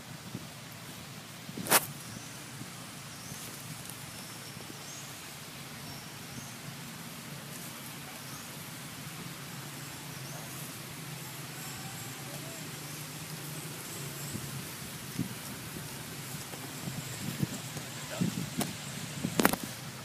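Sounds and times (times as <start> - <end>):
outdoor background hiss: 0.0 - 20.0
faint high chirps: 9.5 - 16.2.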